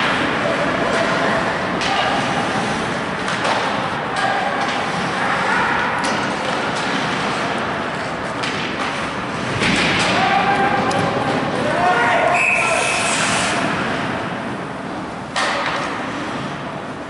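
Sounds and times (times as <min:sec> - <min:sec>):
hockey sticks and puck clacking: 0:00.0 - 0:17.0
skates hissing on ice: 0:02.2 - 0:03.0, 0:12.6 - 0:14.0.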